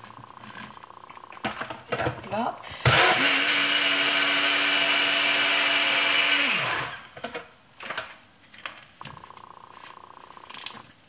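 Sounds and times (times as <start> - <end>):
blender motor whining: 2.7 - 7.2.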